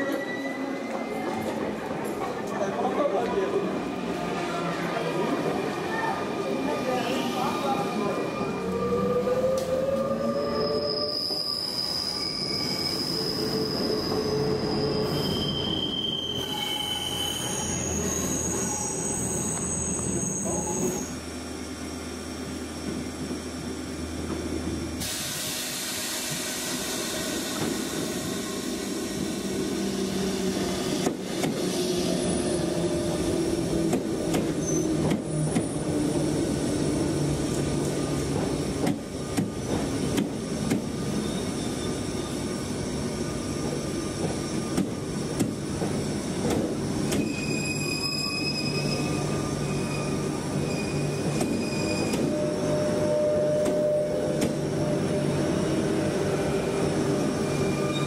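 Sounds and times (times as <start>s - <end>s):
high-pitched train wheel squeals: 0.0s - 1.8s, 8.4s - 21.2s, 34.4s - 36.3s, 41.0s - 42.5s, 47.1s - 58.0s
train hiss: 25.0s - 32.3s.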